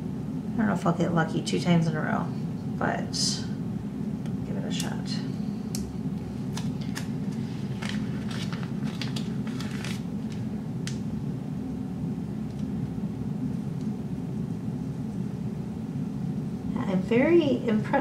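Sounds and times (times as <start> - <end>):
steady low hum: 0.0 - 18.0
sticker paper crackling: 6.5 - 10.4.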